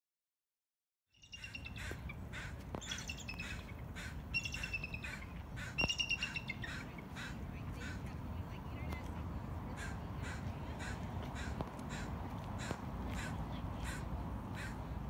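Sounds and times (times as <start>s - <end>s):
raptors calling: 1.2s - 8.1s
low background noise: 1.2s - 15.0s.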